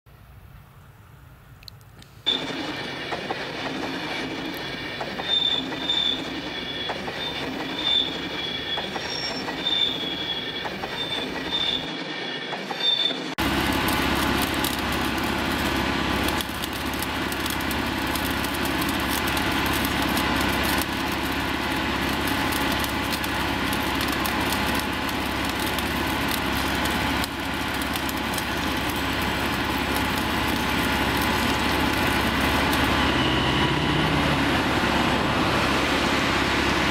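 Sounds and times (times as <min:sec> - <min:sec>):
rail welding machine running: 0:02.2 - 0:36.9
short high-pitched squeals: 0:02.3 - 0:03.3, 0:04.2 - 0:13.4, 0:28.5 - 0:34.3.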